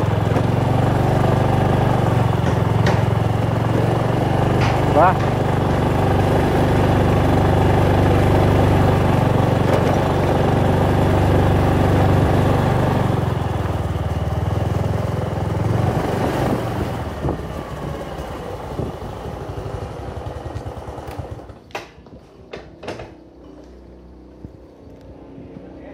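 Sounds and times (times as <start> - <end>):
motor scooter engine running: 0.0 - 21.7
sharp clicks and knocks: 2.3 - 3.4, 4.4 - 5.6
wind noise: 15.8 - 18.0, 18.6 - 19.5.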